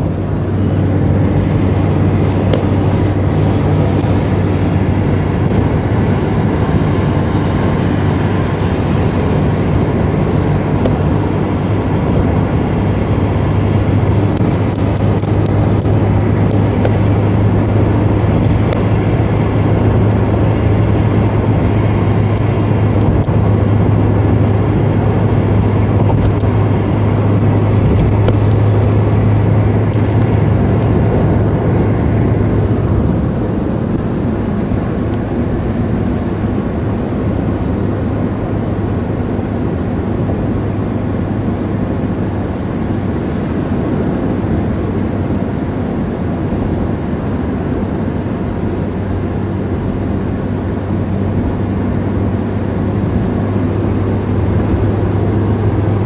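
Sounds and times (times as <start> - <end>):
car engine hum: 0.0 - 56.0
tyre and road rumble: 0.0 - 56.0.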